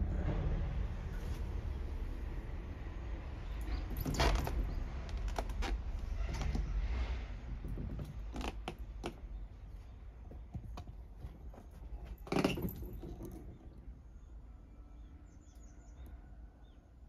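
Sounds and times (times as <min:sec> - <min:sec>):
low steady rumble: 0:00.0 - 0:14.4
creaks and knocks of handwork: 0:03.6 - 0:14.0.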